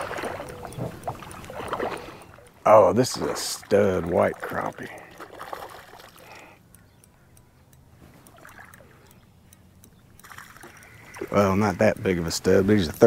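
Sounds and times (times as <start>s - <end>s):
small ticks: 0.0s - 13.0s
fish splashing at surface: 3.1s - 6.3s, 10.2s - 11.4s.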